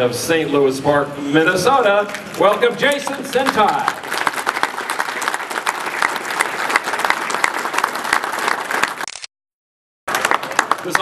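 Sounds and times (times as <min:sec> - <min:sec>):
crowd applauding: 0:02.3 - 0:09.1, 0:10.1 - 0:11.0.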